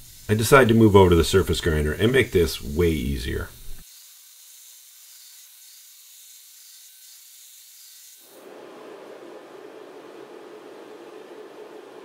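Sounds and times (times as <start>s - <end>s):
belt grinder hissing on steel: 0.0s - 8.5s.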